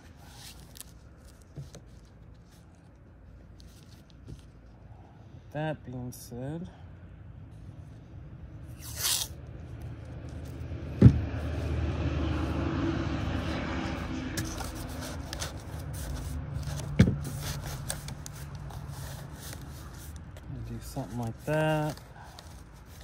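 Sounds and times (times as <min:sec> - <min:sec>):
low steady rumble: 0:00.0 - 0:23.0
cardboard ripping: 0:08.8 - 0:09.4
sharp knocks: 0:11.0 - 0:11.3
cardboard scraping over fabric: 0:14.3 - 0:23.0.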